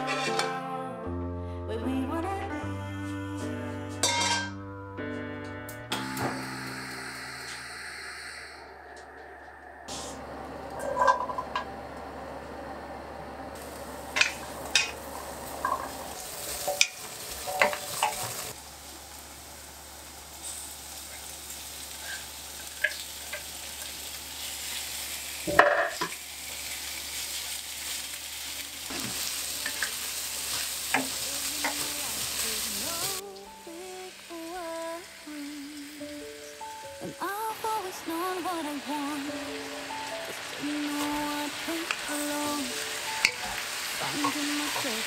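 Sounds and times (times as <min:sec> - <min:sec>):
food sizzling in a wok: 0:00.0 - 0:00.5, 0:06.0 - 0:08.8, 0:13.5 - 0:45.0
spatula clacking and scraping: 0:00.0 - 0:00.5
soft background music: 0:32.8 - 0:45.0.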